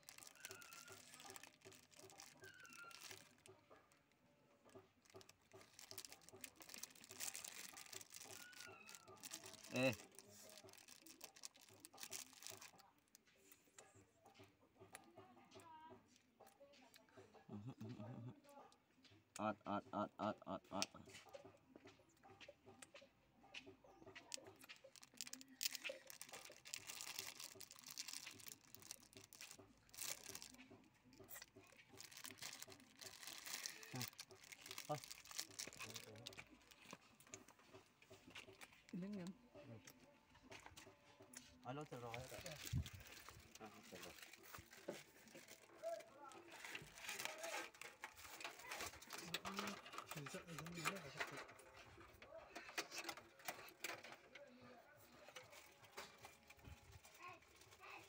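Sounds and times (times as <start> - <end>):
hands handling small metal parts: 0.0 - 3.6, 5.0 - 12.8, 24.2 - 38.9, 41.9 - 54.4
faint clicks and rustles: 0.0 - 19.2, 20.9 - 58.0.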